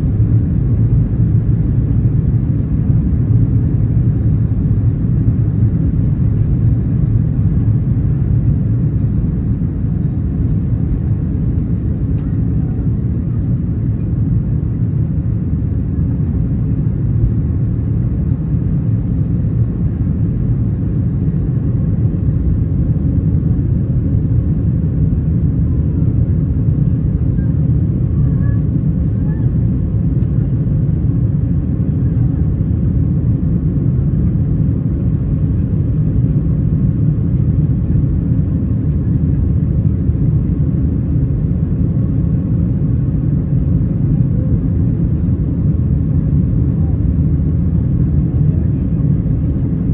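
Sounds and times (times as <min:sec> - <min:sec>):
jet engines rumbling in cabin: 0:00.0 - 0:49.9.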